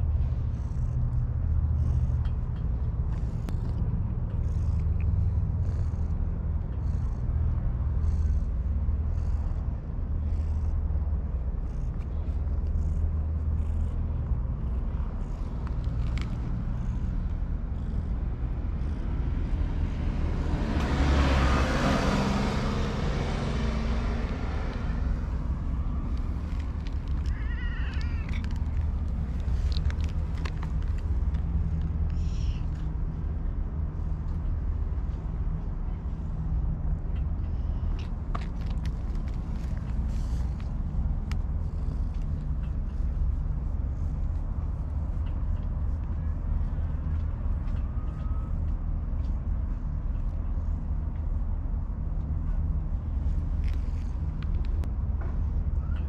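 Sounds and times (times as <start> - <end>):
steady low rumble: 0.0 - 56.0
cat purring: 0.3 - 32.8, 37.5 - 46.0
cat meowing: 27.1 - 28.7.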